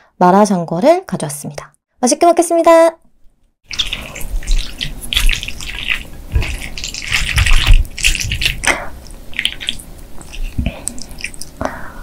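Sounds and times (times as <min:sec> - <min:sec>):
chopsticks stirring wet food: 0:03.7 - 0:11.6.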